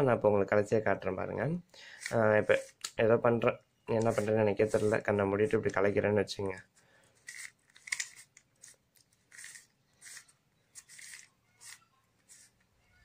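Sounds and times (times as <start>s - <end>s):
puzzle cube clicking twists: 7.2s - 12.6s.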